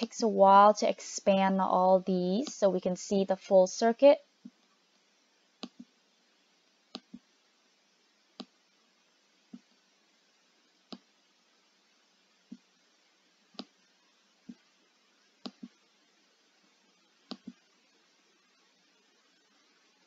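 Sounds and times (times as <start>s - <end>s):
faint steady hiss: 0.0s - 20.0s
mouse button clicks: 17.3s - 17.6s.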